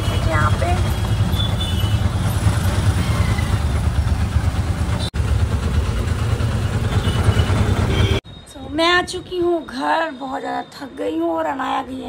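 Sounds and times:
vehicle engine and road rumble: 0:00.0 - 0:09.6.

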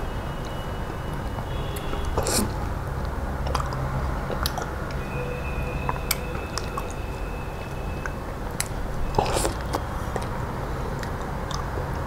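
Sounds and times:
person chewing wetly: 0:01.8 - 0:05.0, 0:08.0 - 0:12.0.

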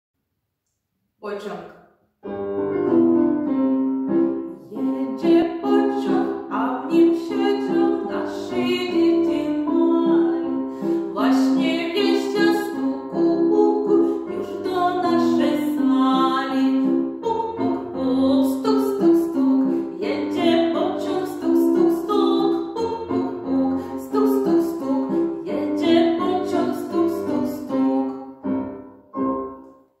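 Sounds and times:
woman singing: 0:04.5 - 0:28.2.

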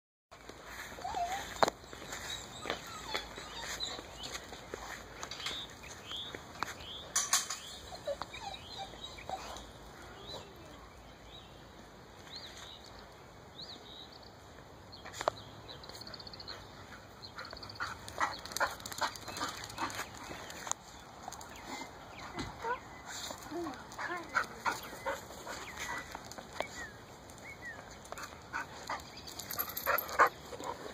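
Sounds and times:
steps or rustles: 0:00.4 - 0:08.3.

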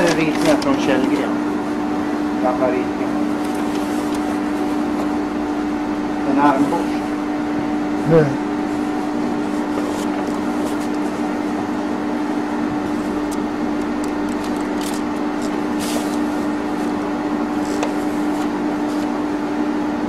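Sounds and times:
large paper rustling: 0:00.0 - 0:01.3, 0:03.2 - 0:05.2, 0:08.6 - 0:11.8, 0:14.0 - 0:19.2
steady hum: 0:00.0 - 0:20.0.

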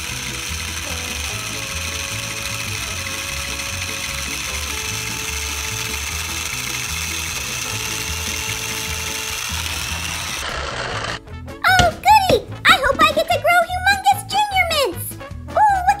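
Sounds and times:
toy engine motors whirring: 0:00.0 - 0:11.2
background music: 0:00.0 - 0:16.0.

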